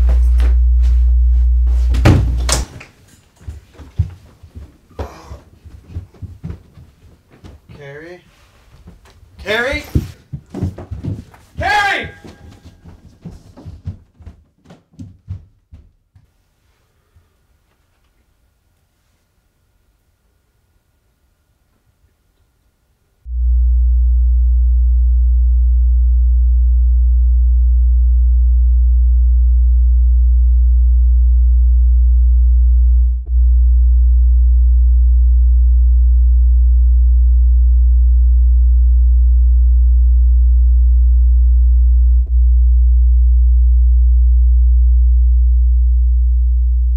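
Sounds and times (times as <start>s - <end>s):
deep bass drone: 0.0s - 2.7s, 23.3s - 46.9s.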